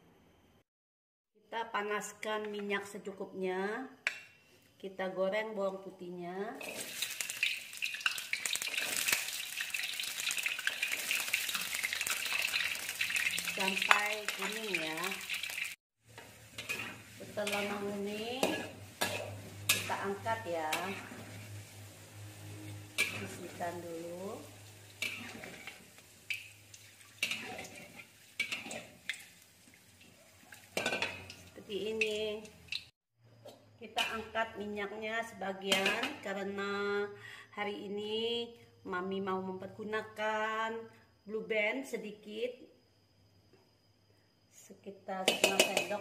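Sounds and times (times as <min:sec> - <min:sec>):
garlic sizzling in hot oil: 0:06.6 - 0:33.0, 0:45.2 - 0:46.0
metal utensils clinking on a wok: 0:16.2 - 0:21.2, 0:22.9 - 0:23.8, 0:25.0 - 0:26.5, 0:27.2 - 0:28.9, 0:30.5 - 0:31.4, 0:34.0 - 0:34.3, 0:35.7 - 0:36.2, 0:45.3 - 0:46.0.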